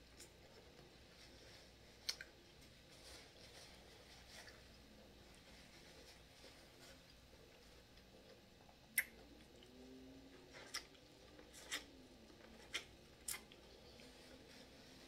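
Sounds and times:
mouth smacks and clicks eating: 2.0 - 2.5, 8.0 - 9.7, 10.6 - 13.6.

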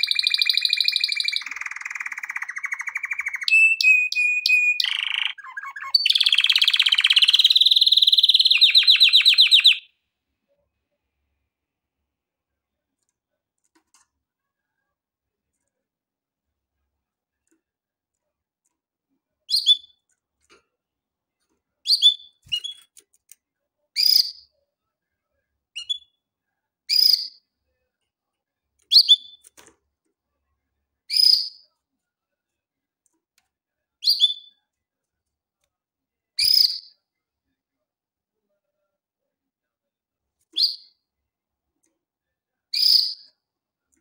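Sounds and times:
canary chirping: 0.0 - 9.9, 19.5 - 20.1, 21.8 - 23.0, 24.0 - 24.5, 25.7 - 26.2, 26.9 - 27.5, 28.9 - 29.5, 31.1 - 31.7, 34.0 - 34.6, 36.4 - 37.0, 40.5 - 41.0, 42.7 - 43.4.

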